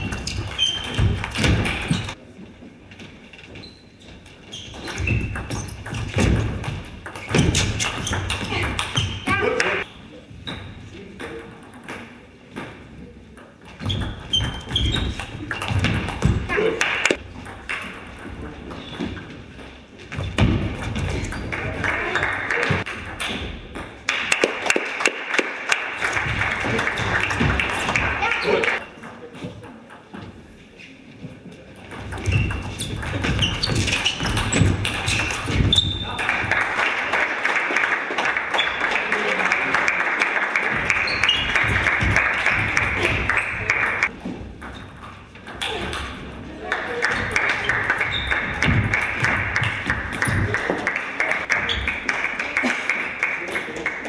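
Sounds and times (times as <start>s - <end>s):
spectators clapping: 16.6s - 17.2s, 21.4s - 22.9s, 24.0s - 28.8s, 35.2s - 44.1s, 46.6s - 54.0s.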